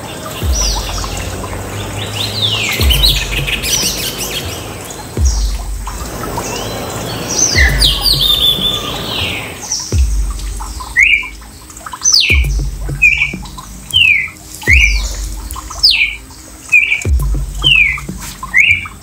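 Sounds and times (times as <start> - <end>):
kestrels squawking: 0.0 - 19.0
dull low thump: 0.4 - 2.2, 2.8 - 4.2, 5.2 - 6.5, 7.6 - 8.8, 9.9 - 11.6, 12.3 - 13.9, 14.7 - 16.2, 17.1 - 18.6.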